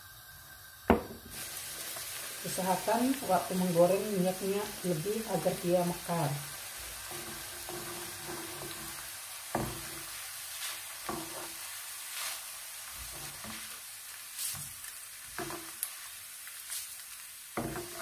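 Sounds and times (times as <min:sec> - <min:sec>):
rice sizzling in hot oil: 0:00.0 - 0:18.0.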